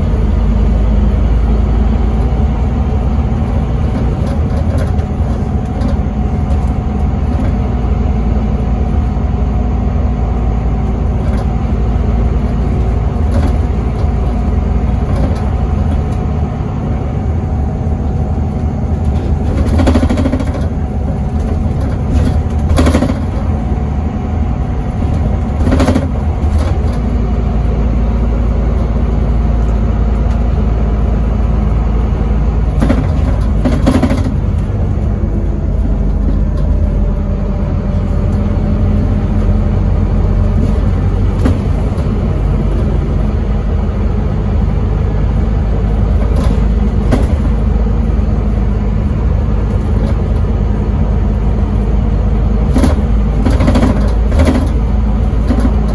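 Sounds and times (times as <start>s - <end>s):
bus diesel engine drone: 0.0s - 55.9s
knocks and rattles: 2.1s - 7.9s, 10.8s - 16.4s, 18.0s - 23.9s, 24.6s - 30.4s, 32.6s - 43.6s, 45.9s - 48.6s, 52.6s - 55.9s.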